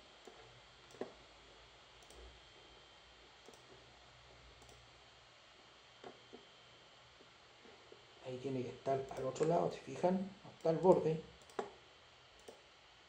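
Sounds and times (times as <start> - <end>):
low background hiss: 0.0 - 13.0
computer mouse clicks: 0.2 - 1.2, 2.0 - 2.3, 3.4 - 3.8, 4.6 - 4.8, 9.1 - 9.6, 10.5 - 11.8, 12.4 - 12.7.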